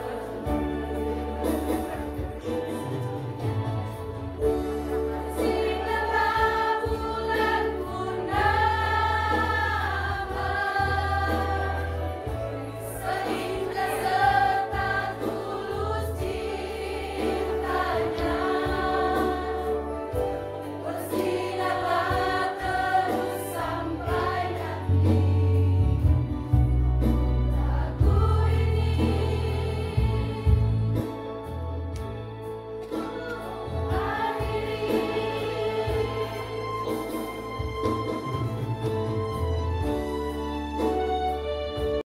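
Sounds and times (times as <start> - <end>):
women's choir singing: 0.0 - 2.8, 4.7 - 26.2, 27.5 - 31.1, 32.9 - 37.7.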